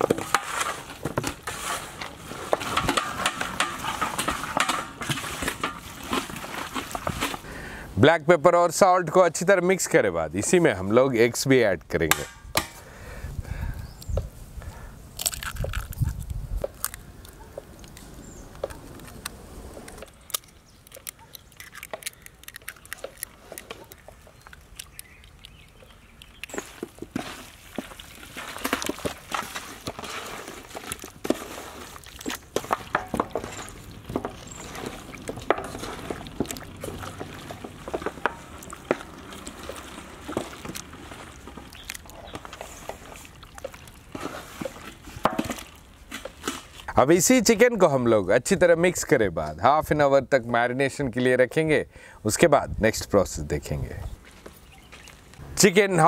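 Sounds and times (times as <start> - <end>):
wet squelching and slapping: 0.0 - 7.5, 20.4 - 47.0.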